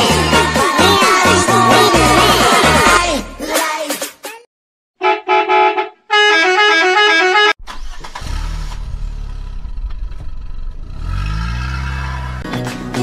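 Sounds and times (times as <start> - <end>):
melodic vehicle horn: 5.0 - 7.6
heavy engine rumbling: 7.6 - 12.5.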